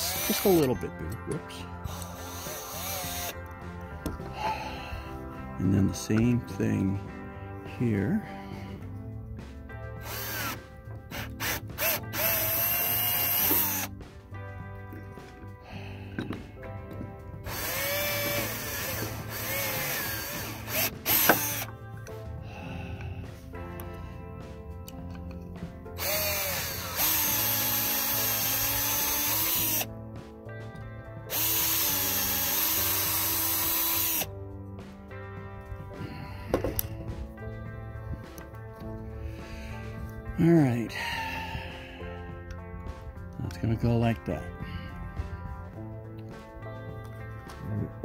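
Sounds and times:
cordless drill whining: 0.0s - 6.5s, 10.0s - 14.0s, 15.8s - 22.1s, 25.9s - 30.0s, 31.2s - 34.3s.

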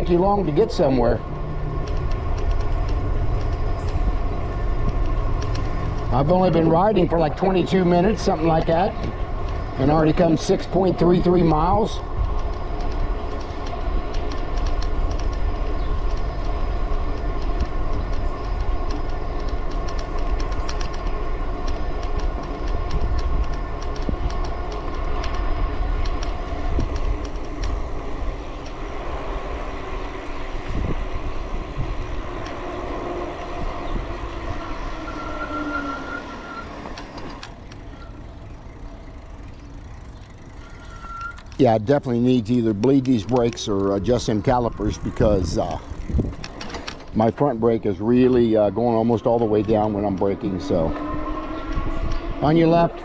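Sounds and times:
wind rumble on microphone: 0.0s - 35.7s, 36.3s - 53.0s
brake squeal: 27.7s - 43.2s, 46.5s - 53.0s.

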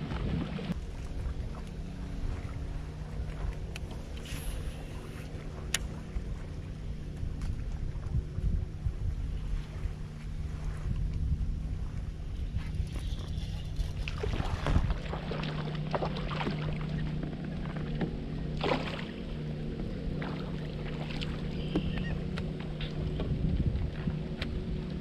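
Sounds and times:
wind on microphone: 0.0s - 15.5s, 21.1s - 25.0s
steady low hum: 0.0s - 25.0s
water sloshing against kayak: 0.0s - 25.0s.

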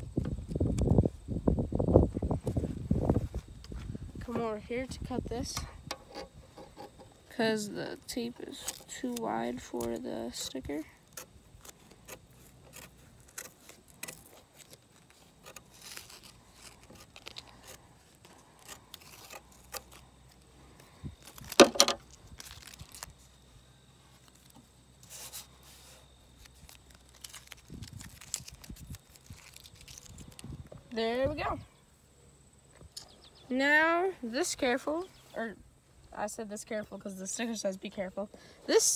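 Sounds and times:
tape crackling and rustling: 5.4s - 31.5s.

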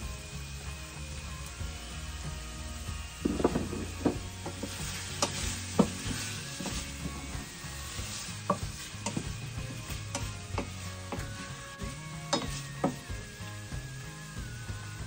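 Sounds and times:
food sizzling in a pot: 0.0s - 15.0s
wooden spatula knocking a pot: 3.2s - 6.8s, 8.5s - 9.4s, 10.1s - 11.4s, 12.3s - 13.1s.

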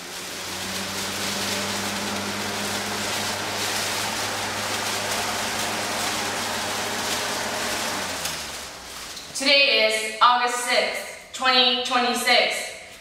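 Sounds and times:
flames hissing: 0.0s - 9.4s.

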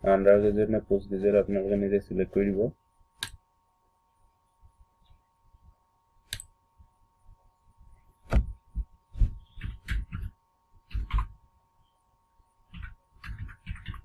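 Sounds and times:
faint steady hum: 0.0s - 14.0s
mouse clicks: 3.2s - 3.4s
keyboard typing: 9.4s - 11.4s, 12.7s - 14.0s.

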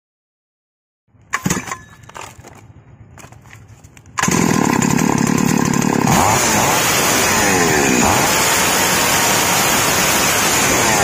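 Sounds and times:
chainsaw engine running: 4.2s - 11.0s.

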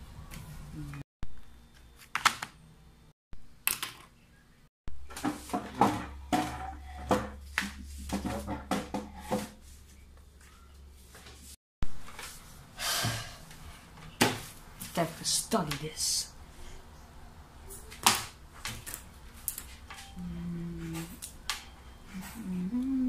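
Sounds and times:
household objects clattering: 5.1s - 9.6s.

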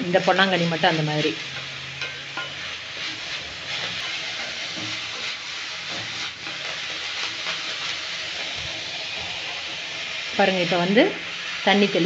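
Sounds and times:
greens sizzling in oil: 0.0s - 12.0s
wooden spatula scraping a pan: 0.6s - 10.3s.

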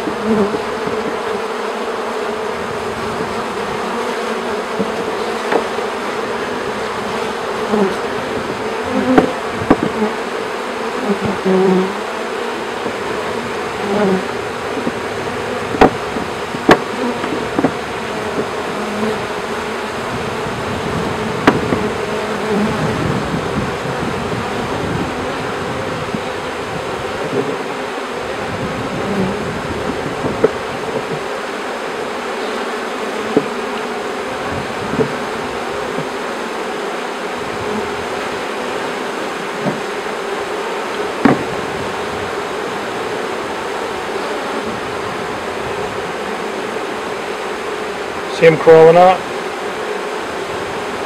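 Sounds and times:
bees buzzing: 0.0s - 51.0s
wooden bars knocking: 39.6s - 39.8s, 41.2s - 41.5s.

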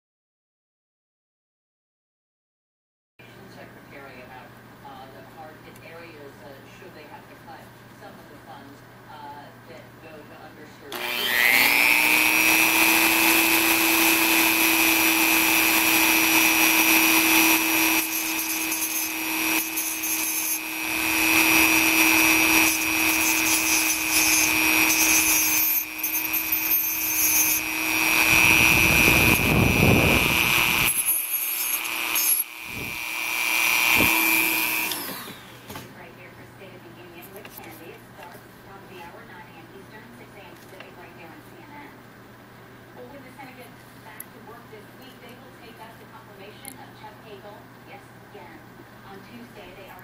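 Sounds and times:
rotary tool high whine: 10.9s - 35.8s
cutoff wheel grinding: 11.0s - 35.7s.

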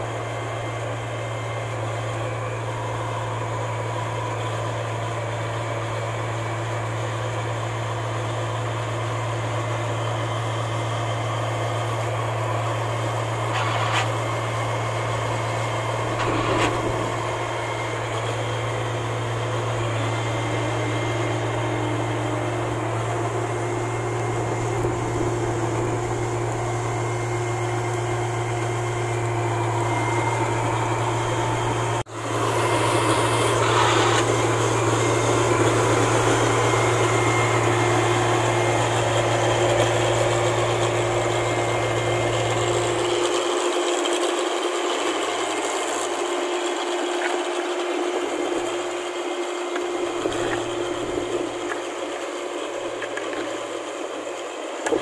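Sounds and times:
combine harvester diesel engine drone: 0.0s - 55.0s
machinery clanks: 16.0s - 18.5s.

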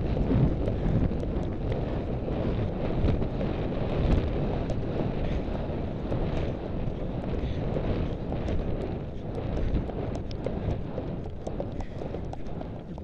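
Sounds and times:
wind buffeting a microphone: 0.0s - 13.0s
faint ticks: 4.0s - 13.0s.

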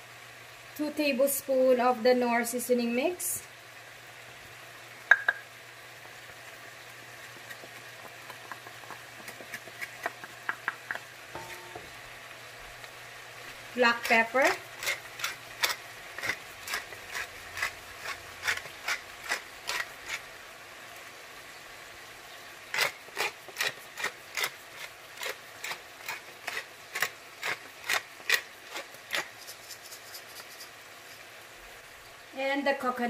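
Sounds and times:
pepper mill grinding: 6.4s - 11.9s, 13.7s - 20.2s, 22.7s - 31.2s.

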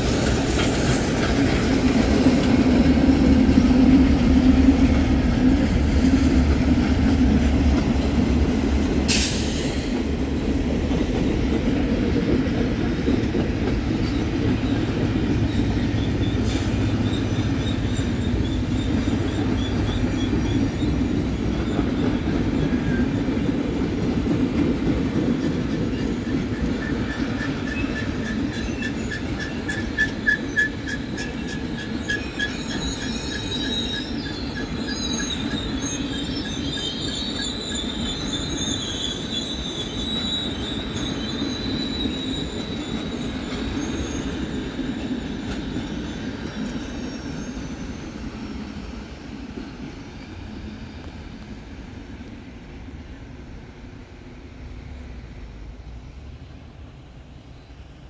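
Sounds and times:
train wheels rumbling: 0.0s - 58.0s
high-pitched wheel squeals: 14.1s - 23.3s, 25.9s - 48.5s.

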